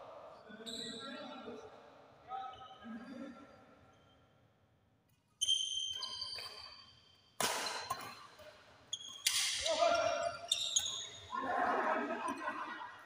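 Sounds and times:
rackets hitting shuttlecock: 7.4 - 8.5, 9.1 - 9.8.

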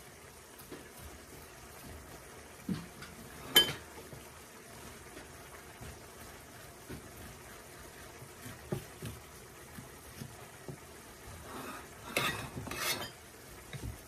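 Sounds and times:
spoon scraping squash on plate: 11.5 - 13.2.

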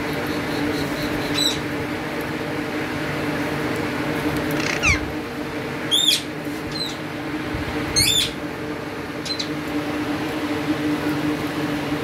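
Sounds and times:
steady low hum: 0.0 - 12.0
parakeets squawking: 0.6 - 1.6, 4.5 - 5.1, 5.9 - 7.0, 7.9 - 8.4, 9.2 - 9.5.

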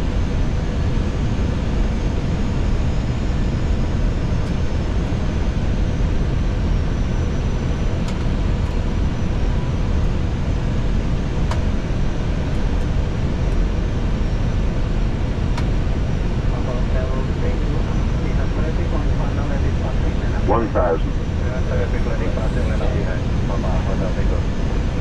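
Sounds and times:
cockpit airflow and engine noise: 0.0 - 25.0.

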